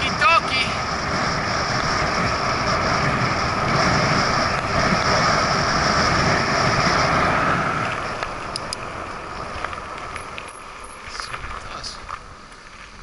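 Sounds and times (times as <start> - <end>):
tyres rolling on asphalt: 0.0 - 13.0
wind rush: 0.0 - 13.0.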